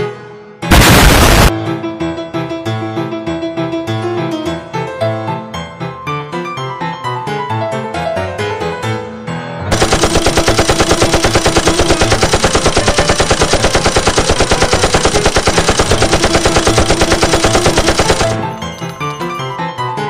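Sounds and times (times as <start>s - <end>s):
machine-gun fire: 0.7s - 1.5s, 9.7s - 18.9s
piano music: 1.5s - 9.7s, 18.2s - 20.0s.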